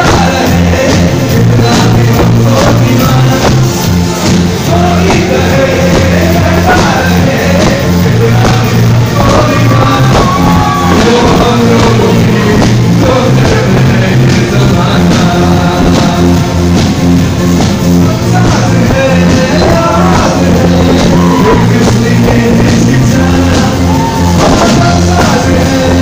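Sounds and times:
live band with singer: 0.0 - 26.0.

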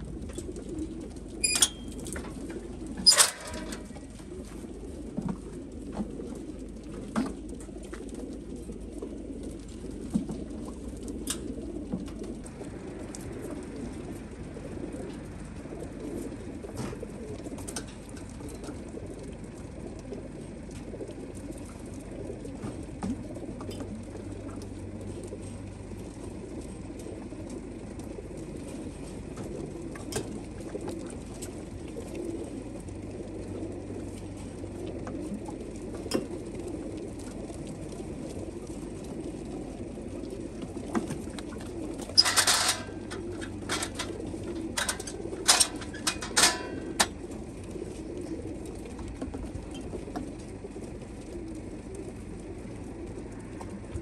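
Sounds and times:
pigeons cooing: 0.0 - 54.0
watering can knocking metal: 44.8 - 47.1.

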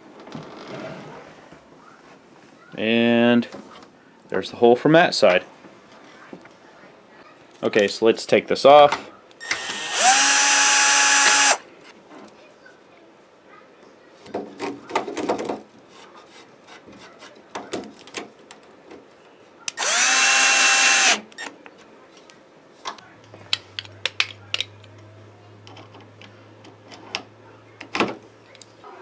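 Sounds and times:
cordless drill spinning: 9.4 - 11.6, 19.8 - 21.2.

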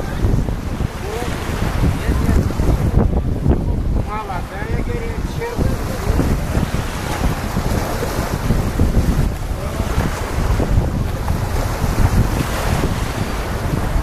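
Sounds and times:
small waves breaking on beach: 0.0 - 14.0
wind buffeting microphone: 0.0 - 14.0.

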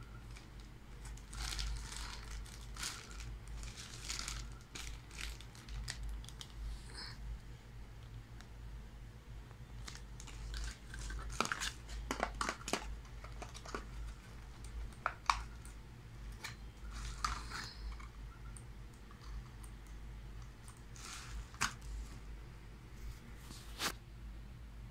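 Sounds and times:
low steady hum: 0.0 - 24.9
plastic packaging crinkling: 0.1 - 6.6, 9.8 - 18.1, 20.7 - 21.9.

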